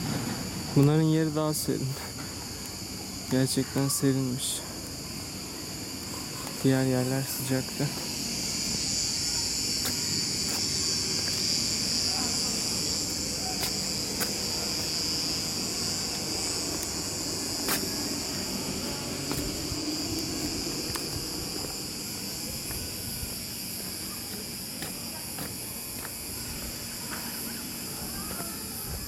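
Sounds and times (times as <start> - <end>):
high-pitched insect chorus: 0.0 - 29.0.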